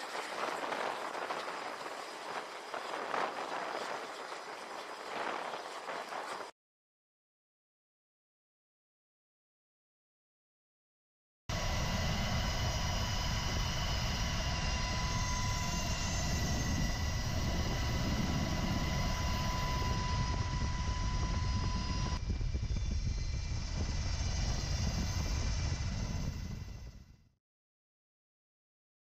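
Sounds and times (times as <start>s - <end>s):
aircraft engine rumble: 0.0s - 6.5s, 11.5s - 27.3s
high even engine whine: 11.5s - 27.3s.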